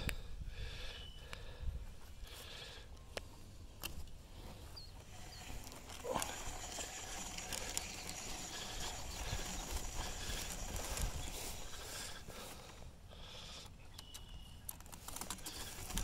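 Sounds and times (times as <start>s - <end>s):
footsteps in grass: 1.8s - 12.9s
rustling grass: 3.3s - 12.9s
reel clicking and rattling: 5.0s - 12.3s, 14.0s - 16.0s.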